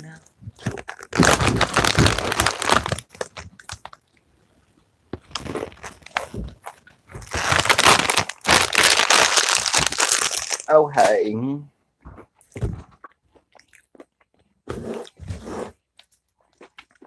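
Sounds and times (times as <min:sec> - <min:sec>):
plastic snack bag crinkling: 0:00.6 - 0:04.1, 0:05.3 - 0:10.7.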